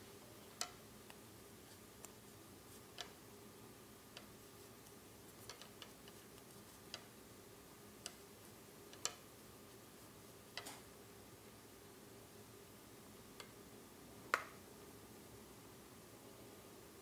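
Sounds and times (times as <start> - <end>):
faint steady hum: 0.0 - 17.0
knitting needles clicking: 2.9 - 3.2, 4.1 - 7.1, 8.9 - 9.2.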